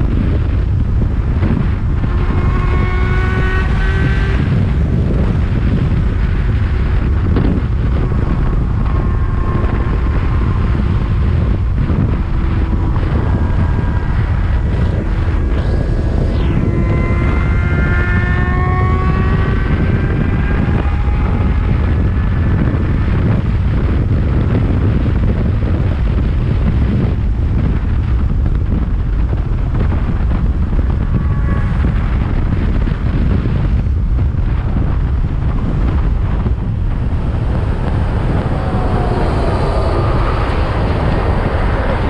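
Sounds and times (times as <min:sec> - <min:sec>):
motorcycle engine accelerating: 0:00.0 - 0:42.0
wind noise on microphone: 0:00.0 - 0:42.0.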